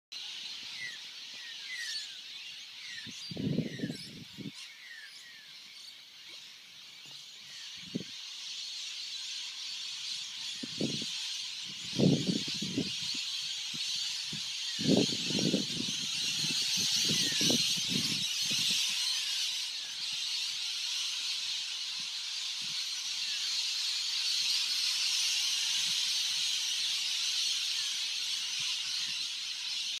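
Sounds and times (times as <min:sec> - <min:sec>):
flock of parrots screeching: 0:09.6 - 0:30.0.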